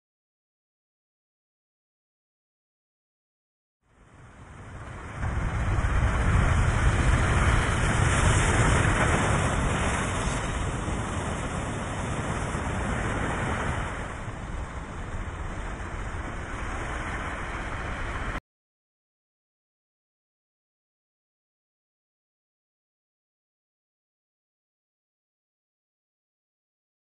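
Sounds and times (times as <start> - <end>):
ocean wave breaking: 4.0 - 18.4.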